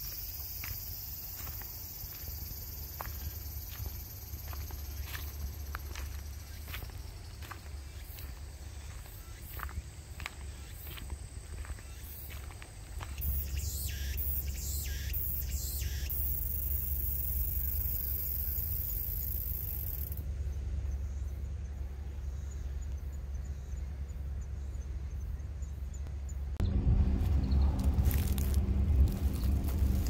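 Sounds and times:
insects buzzing: 0.0s - 26.4s, 27.3s - 30.0s
low steady hum: 1.3s - 30.0s
low rumble: 24.9s - 30.0s.

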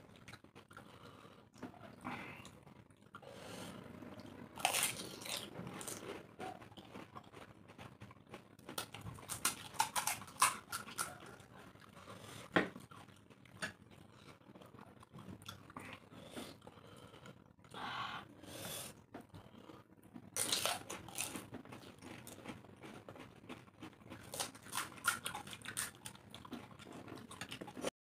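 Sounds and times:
crisp shells crunching when chewed: 4.5s - 16.8s, 19.3s - 27.9s.

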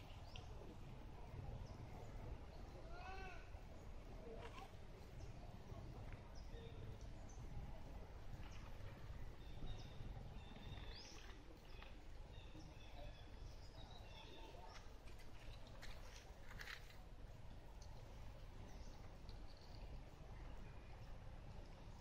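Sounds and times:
steady low rumble: 14.8s - 22.0s.

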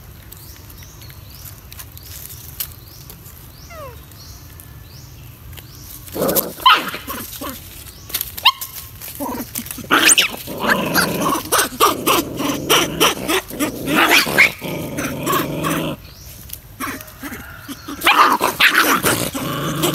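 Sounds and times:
young animals growling and yelping: 3.6s - 4.2s, 6.1s - 7.9s, 9.0s - 19.9s.

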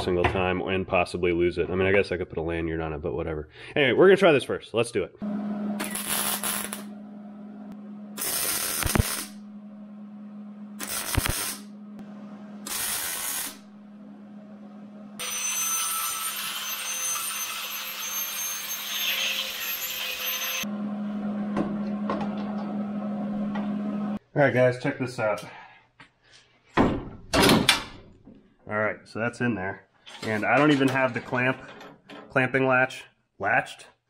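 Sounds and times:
angle grinder grinding metal: 5.8s - 6.9s, 15.2s - 20.7s
welding arc crackle: 5.8s - 6.9s, 8.2s - 9.4s, 10.8s - 11.7s, 12.7s - 13.7s
steady low hum: 6.6s - 12.7s.

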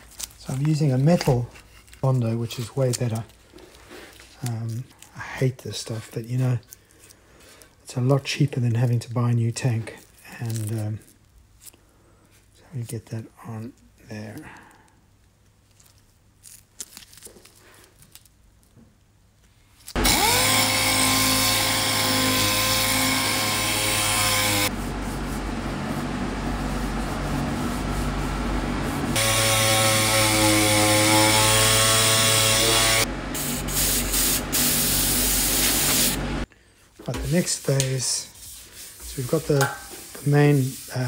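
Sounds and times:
power sander whining on metal: 20.0s - 24.8s, 29.1s - 33.1s.

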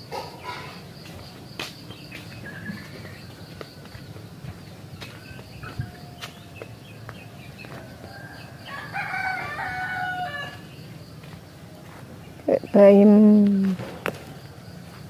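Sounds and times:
rooster crowing: 7.3s - 10.8s.

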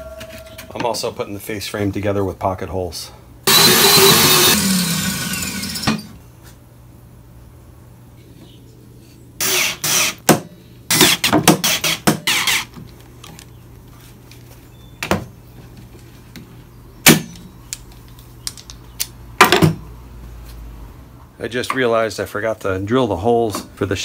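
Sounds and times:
cordless drill driving screws: 3.5s - 6.1s, 11.8s - 12.7s.

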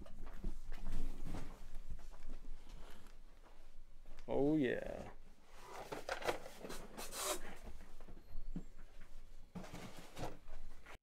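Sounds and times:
plastic discs rustling and clicking: 5.6s - 7.4s.

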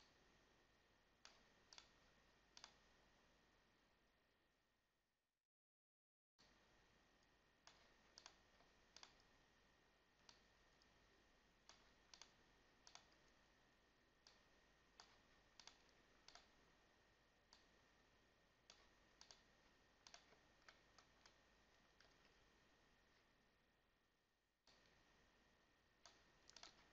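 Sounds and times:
faint high-pitched whine: 0.0s - 4.9s, 6.4s - 26.9s
computer mouse clicks: 1.2s - 2.9s, 7.2s - 9.4s, 10.2s - 13.5s, 14.2s - 16.7s, 17.5s - 17.8s, 18.6s - 23.3s, 24.7s - 25.2s, 26.0s - 26.9s.

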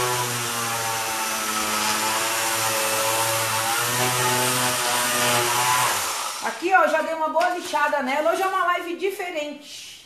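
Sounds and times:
electric sander sanding wood: 0.0s - 6.7s.

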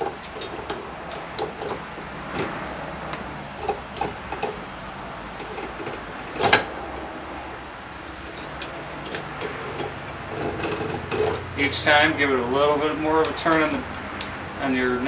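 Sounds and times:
metallic clunk: 0.0s - 7.1s, 8.0s - 11.6s
slip roll machine rolling metal: 0.0s - 13.9s.

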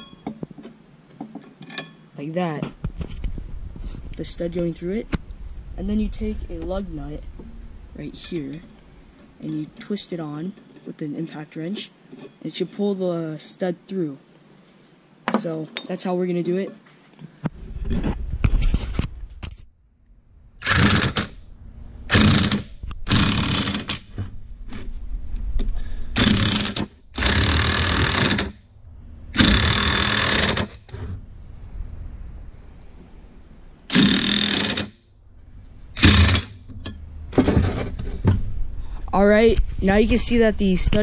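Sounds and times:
impact wrench hammering: 26.2s - 28.6s, 29.4s - 30.9s, 33.9s - 34.9s.

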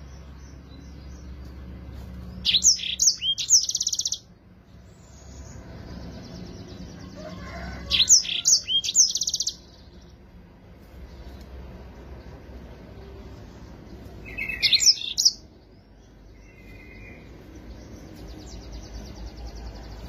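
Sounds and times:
canary singing whistles and trill: 2.2s - 4.3s, 5.0s - 10.0s, 14.2s - 20.0s.

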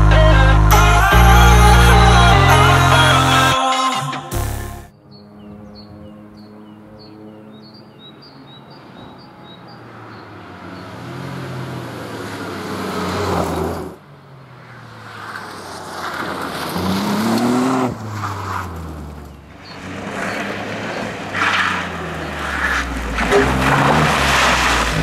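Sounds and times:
rally car engine at full throttle: 7.5s - 25.0s.

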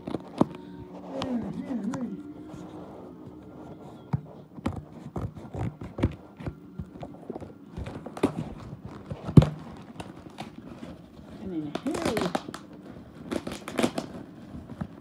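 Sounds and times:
cardboard parcel knocks and rustling: 8.1s - 10.6s.

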